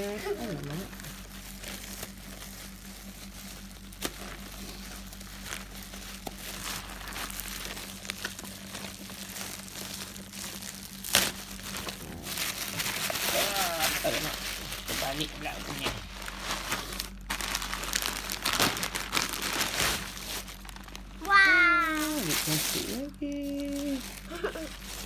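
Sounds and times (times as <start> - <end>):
plastic packaging crinkling: 0.0 - 25.0
sharp plastic crackles: 0.6 - 25.0.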